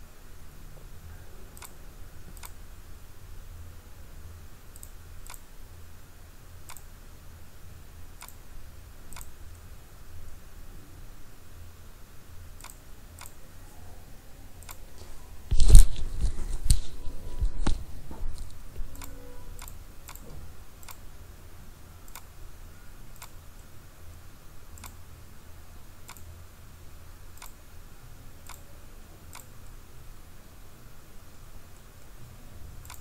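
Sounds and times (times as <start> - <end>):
computer mouse clicking: 1.6 - 2.6, 4.7 - 5.5, 6.6 - 6.9, 8.2 - 8.4, 9.1 - 9.6, 14.6 - 21.0, 23.1 - 23.7, 24.8 - 25.0, 26.0 - 26.3, 29.3 - 29.7.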